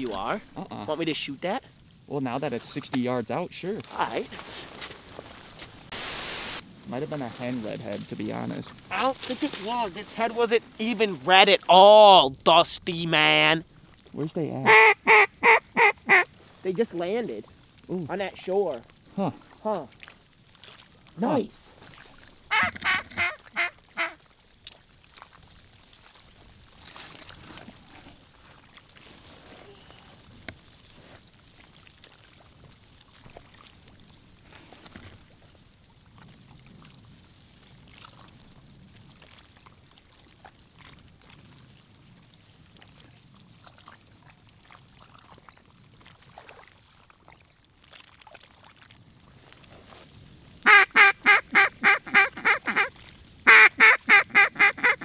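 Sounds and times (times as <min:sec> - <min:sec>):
mallard quacking: 0:14.6 - 0:16.3, 0:22.5 - 0:24.2, 0:50.7 - 0:52.9, 0:53.5 - 0:55.0.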